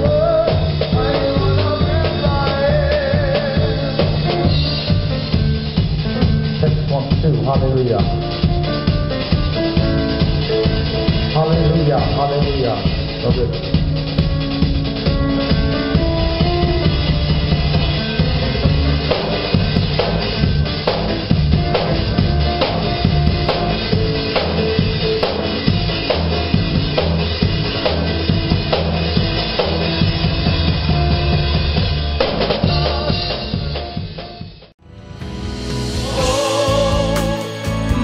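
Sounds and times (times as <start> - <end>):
bass line: 0.0 - 38.0
drum kit groove: 0.0 - 38.0
choir singing gospel music: 32.1 - 34.2, 35.0 - 38.0.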